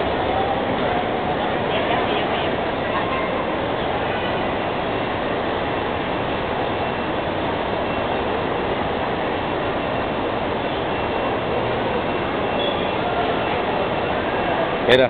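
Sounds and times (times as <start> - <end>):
crowd voices murmuring: 0.0 - 6.1, 10.1 - 15.0
moving walkway rumble: 0.0 - 15.0.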